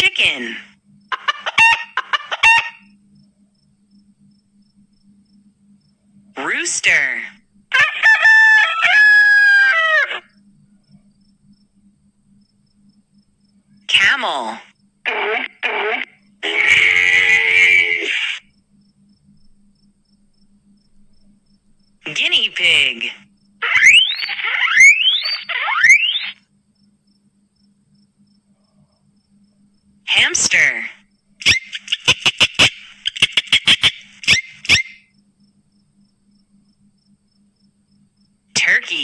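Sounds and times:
guinea pig squealing: 1.1s - 2.9s, 15.1s - 18.5s, 23.6s - 26.4s, 31.4s - 35.1s
rooster crowing: 7.7s - 10.4s.

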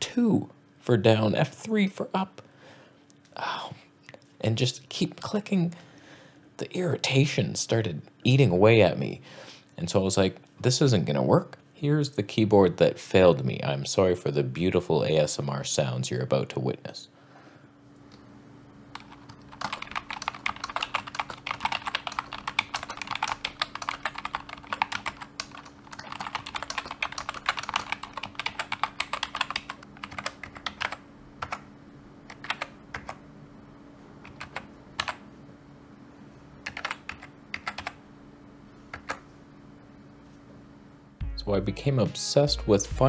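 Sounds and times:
keyboard typing: 18.9s - 31.7s, 32.3s - 33.2s, 34.2s - 35.2s, 36.6s - 38.0s, 38.9s - 39.2s.

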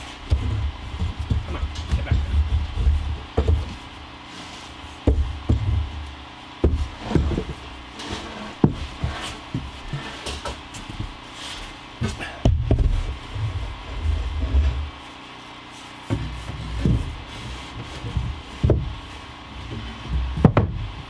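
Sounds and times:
wooden board knocking and clunking: 0.2s - 3.9s, 5.0s - 11.2s, 12.0s - 13.3s, 16.1s - 21.0s.

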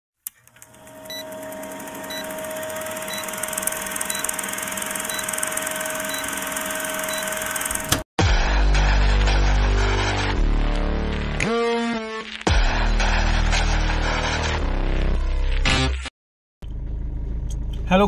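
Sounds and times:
film projector whirr: 0.3s - 8.0s.

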